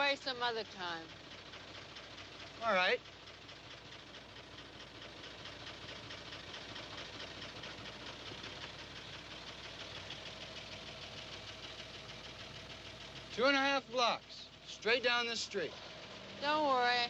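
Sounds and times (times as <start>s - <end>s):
car engine idling: 0.0s - 17.0s.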